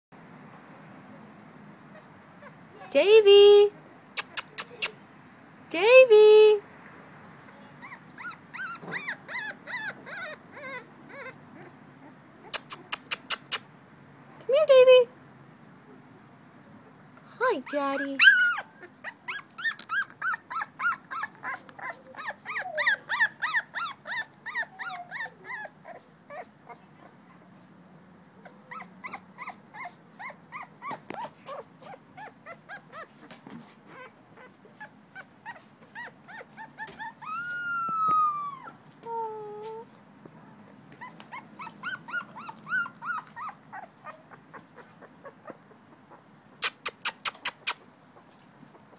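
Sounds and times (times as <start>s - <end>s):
puppy crying: 1.9s - 3.0s, 7.5s - 13.6s, 17.6s - 26.8s, 28.4s - 39.8s, 41.0s - 47.9s
puppy whimpering: 1.9s - 3.0s, 7.5s - 13.6s, 17.6s - 27.2s, 28.4s - 39.9s, 41.0s - 48.9s.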